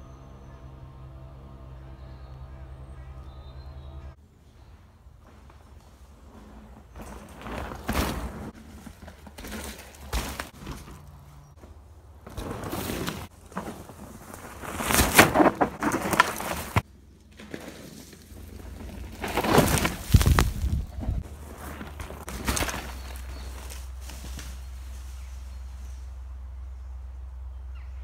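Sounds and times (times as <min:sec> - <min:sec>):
bike tyres crunching over twigs: 0:04.4 - 0:26.3.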